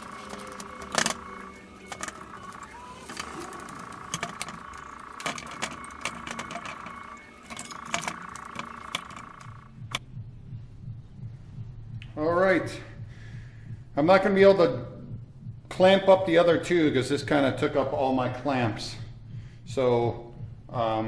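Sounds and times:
steady high hum: 0:00.0 - 0:15.7.

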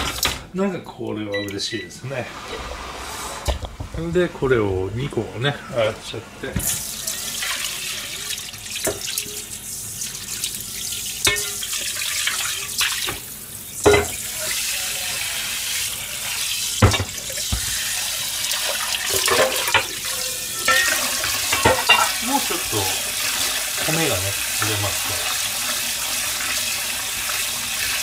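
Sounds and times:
tap water splashing into sink: 0:06.6 - 0:09.3, 0:16.8 - 0:17.8, 0:20.7 - 0:28.0
metal bowls clanking: 0:11.2 - 0:11.9, 0:13.9 - 0:14.6, 0:18.8 - 0:24.9.

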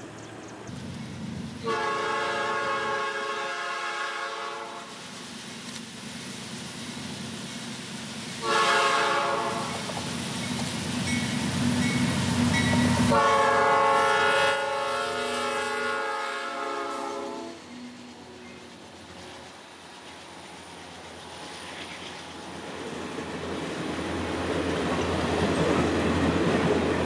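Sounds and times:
locomotive rumble: 0:00.0 - 0:27.0
locomotive air horn blasts: 0:01.6 - 0:04.9, 0:08.4 - 0:09.8, 0:12.8 - 0:18.0.

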